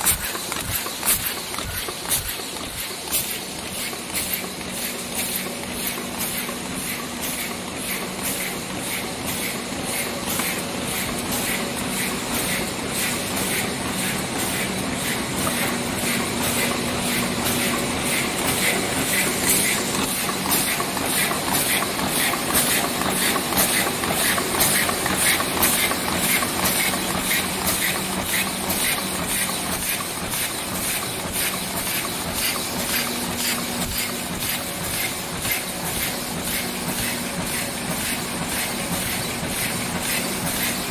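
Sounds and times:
machines clattering and clicking: 0:00.0 - 0:40.9.

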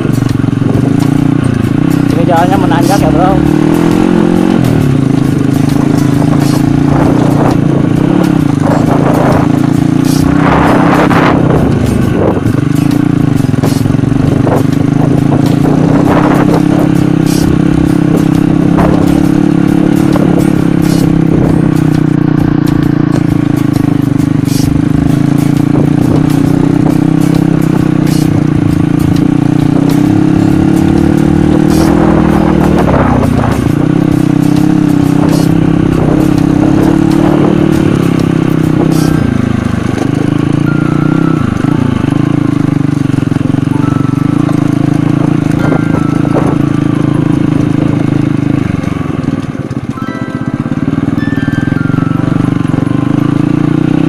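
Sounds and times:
small motorcycle engine running: 0:00.0 - 0:54.0.

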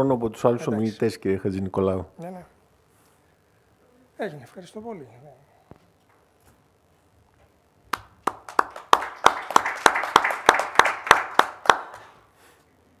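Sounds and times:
audience applause: 0:07.9 - 0:12.2
close hands clapping: 0:07.9 - 0:12.2.

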